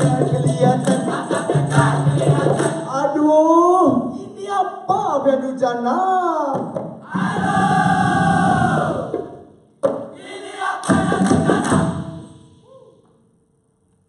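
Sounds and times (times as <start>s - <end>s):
group chanting in unison: 0.0s - 3.0s, 7.0s - 9.5s, 10.1s - 12.7s
group voices and claps: 0.8s - 2.9s, 10.2s - 12.0s.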